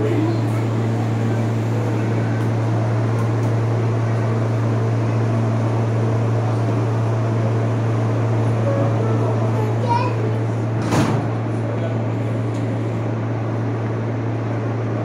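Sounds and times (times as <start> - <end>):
subway car low hum and drone: 0.0 - 15.0.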